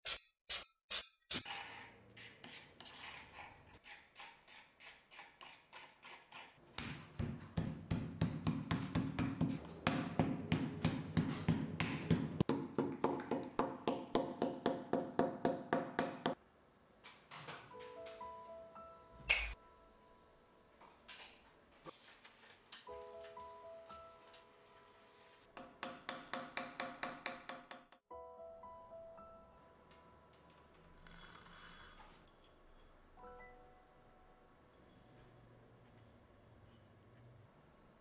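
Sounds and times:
mallet thudding on clay: 6.8 - 16.4.

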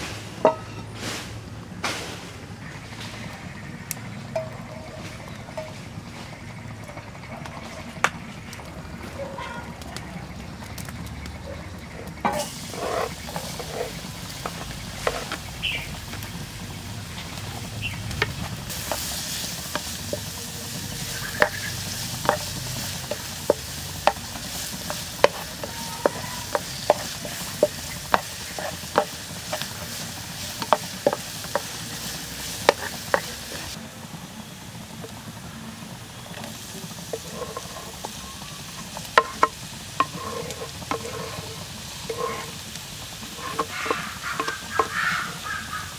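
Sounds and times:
garlic sizzling in hot oil: 2.6 - 45.9
wooden spatula scraping a pan: 12.2 - 15.9, 18.4 - 33.8, 36.4 - 45.9
food scraped off wooden board: 12.3 - 14.0, 40.0 - 42.6, 43.4 - 45.0.

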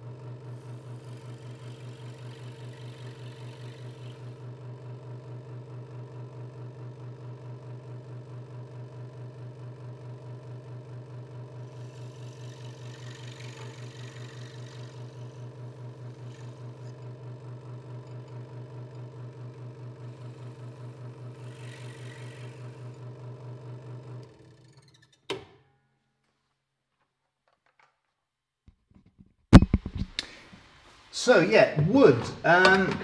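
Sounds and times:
scroll saw running: 0.4 - 4.5, 11.4 - 25.0.

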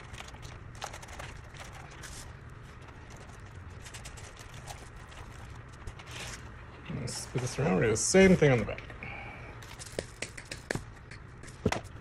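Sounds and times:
artificial greenery rustling: 0.0 - 8.8
low background hum: 0.0 - 12.0.

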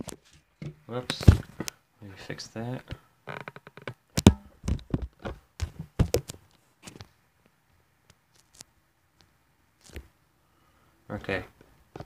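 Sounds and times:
handling knocks and thumps: 0.0 - 1.7, 3.8 - 6.4.

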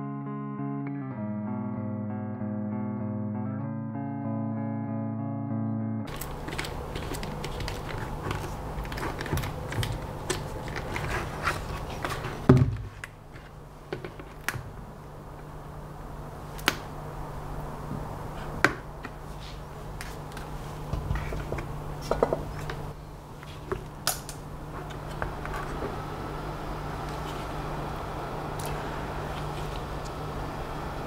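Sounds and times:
clicks and rattles of handling: 6.1 - 14.6
steady low hum: 6.1 - 31.0.

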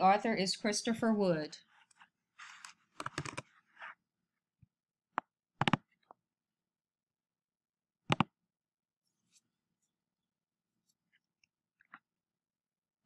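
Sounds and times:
keyboard and mouse clicks: 2.6 - 3.5, 5.1 - 6.2, 8.1 - 8.4.

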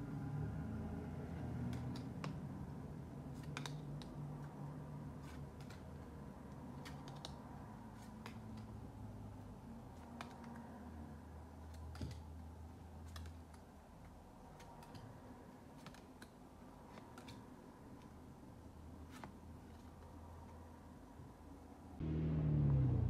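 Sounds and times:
cards being shuffled: 1.6 - 2.6, 3.3 - 8.9, 9.8 - 18.2, 19.0 - 20.5.

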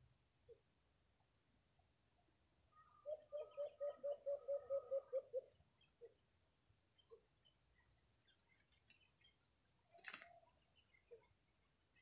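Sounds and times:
crickets droning: 0.0 - 12.0
dove cooing: 3.0 - 5.5.

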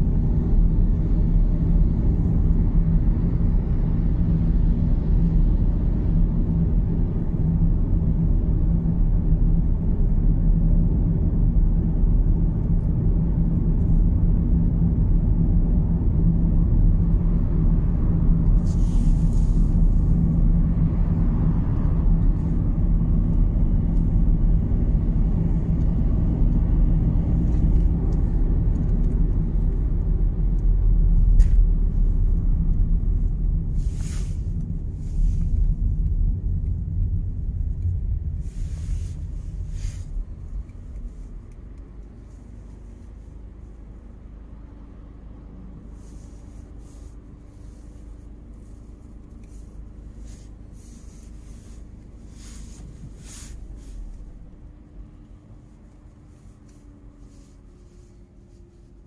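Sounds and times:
car cabin road rumble: 0.0 - 59.0
brief hiss: 33.8 - 34.5.

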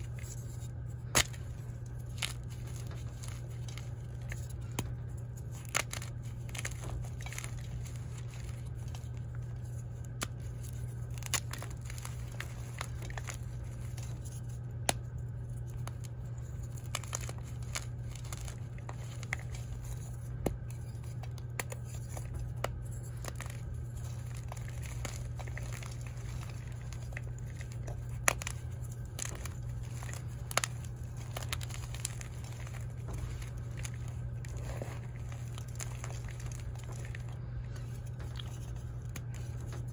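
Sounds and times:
chalk chunk cracking: 0.0 - 39.9
chalk crumbling and crunching: 0.0 - 39.9
steady low hum: 0.0 - 39.9.

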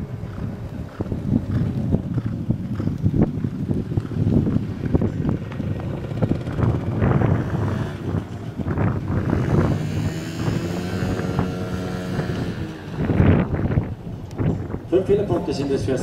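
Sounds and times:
muffled hoofbeats on sand: 0.0 - 8.7
wind noise on microphone: 0.0 - 16.0
steady engine drone: 3.1 - 15.5.

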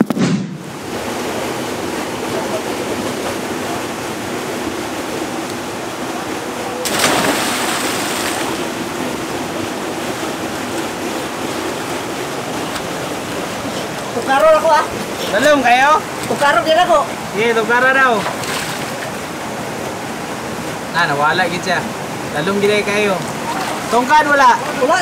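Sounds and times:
flowing river water: 0.6 - 25.0
person splashing into water: 6.8 - 8.7.

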